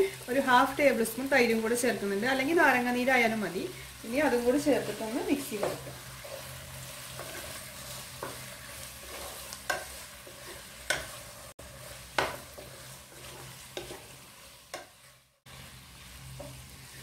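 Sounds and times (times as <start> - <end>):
chicken sizzling in a pan: 0.0 - 17.0
wooden spatula scraping a pan: 4.2 - 17.0.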